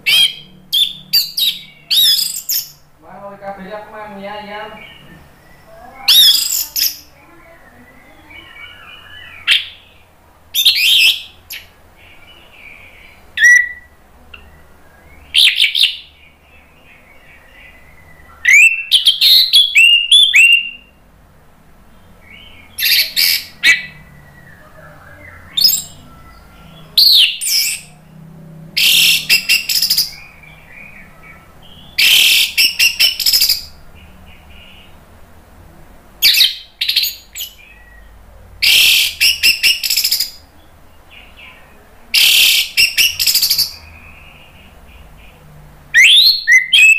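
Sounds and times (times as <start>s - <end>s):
thrush singing: 22.0s - 35.3s.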